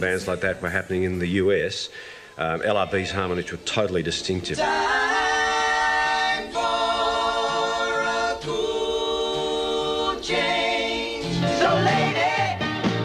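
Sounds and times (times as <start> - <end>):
men singing in harmony: 4.5 - 12.9.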